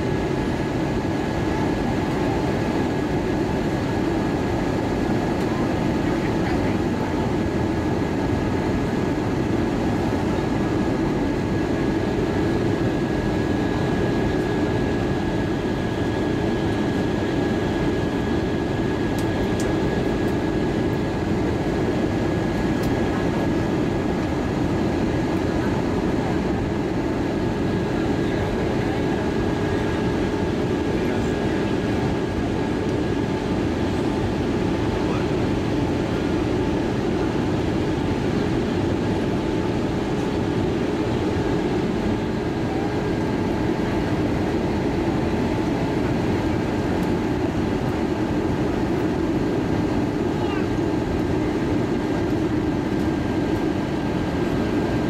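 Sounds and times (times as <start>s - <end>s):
jet engines droning: 0.0s - 55.0s.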